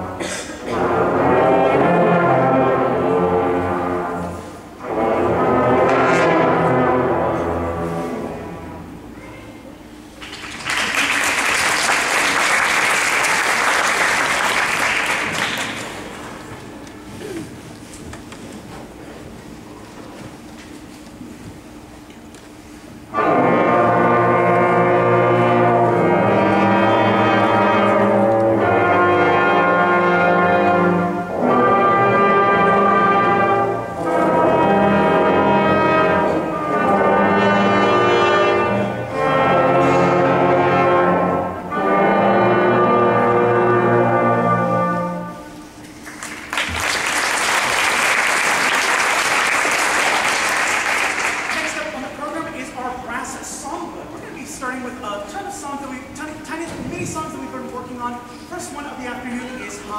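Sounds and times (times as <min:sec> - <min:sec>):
brass band playing held chords: 0:00.0 - 0:09.1, 0:23.0 - 0:45.9
audience applause: 0:10.2 - 0:16.6, 0:46.0 - 0:52.0.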